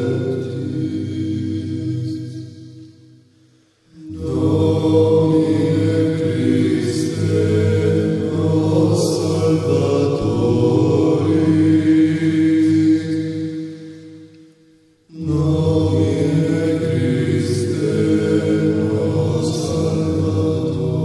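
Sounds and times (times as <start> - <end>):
steady drone: 3.9 - 21.0.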